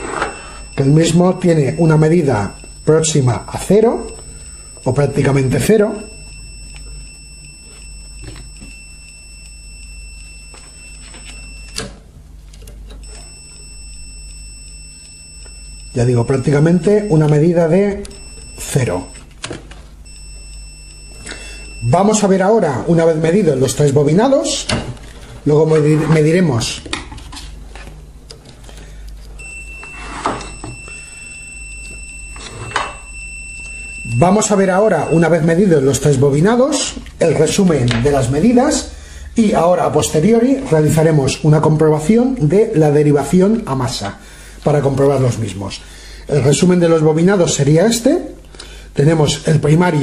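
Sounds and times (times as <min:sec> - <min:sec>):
multimeter continuity beep: 0:00.0 - 0:12.0, 0:13.0 - 0:19.3, 0:20.0 - 0:24.7, 0:29.4 - 0:45.5
probe click: 0:00.0 - 0:12.0, 0:12.9 - 0:19.5.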